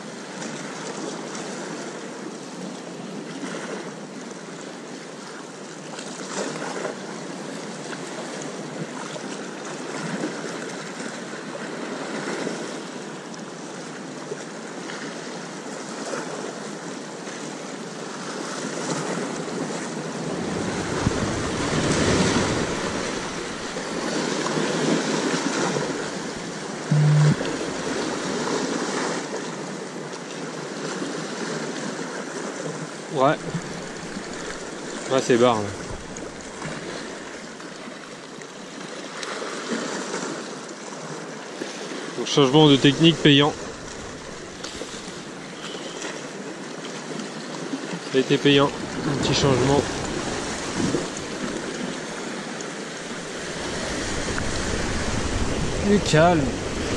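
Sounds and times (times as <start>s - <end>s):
sea waves washing onto shore: 0.0s - 56.9s
short low hum: 26.4s - 28.0s.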